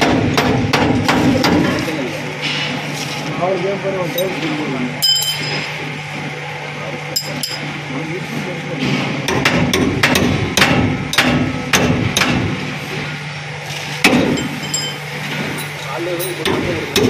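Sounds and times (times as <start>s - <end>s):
hammer striking metal: 5.0s - 5.8s, 7.2s - 7.7s, 9.3s - 12.6s, 14.0s - 17.0s.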